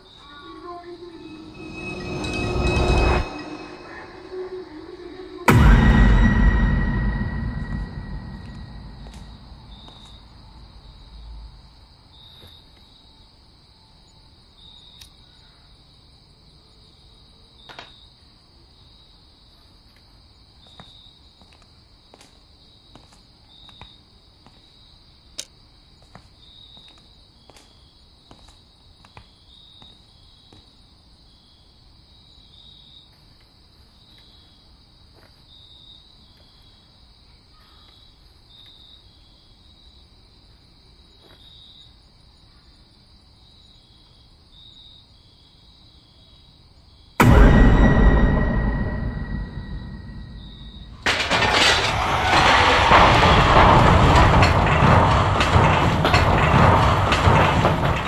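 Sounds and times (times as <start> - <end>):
crickets chirping: 0.0 - 51.6
music: 0.2 - 6.9.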